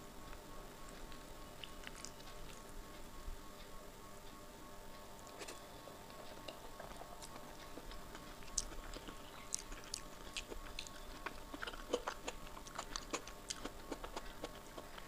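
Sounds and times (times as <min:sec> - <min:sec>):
wet chewing: 0:00.8 - 0:03.0, 0:05.2 - 0:15.0
fingers squishing food: 0:05.3 - 0:15.0.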